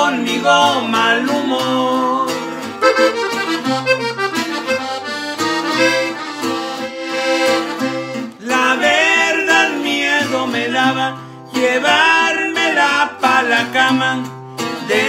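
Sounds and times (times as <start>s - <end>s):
strummed bass guitar: 0.0s - 11.1s
button accordion melody: 2.6s - 9.2s.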